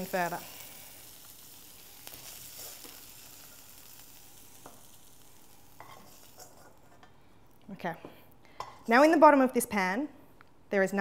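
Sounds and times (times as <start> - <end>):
bacon sizzling in fat: 0.0 - 7.1.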